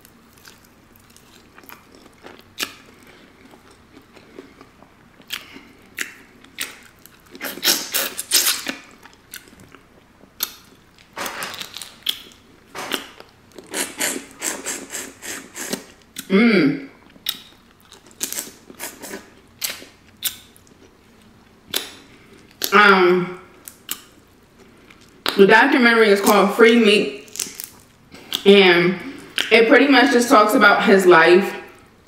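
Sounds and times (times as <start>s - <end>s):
wet smacking and chewing: 0.3s - 16.3s, 17.0s - 22.7s
crawfish shells crackling: 27.2s - 28.4s.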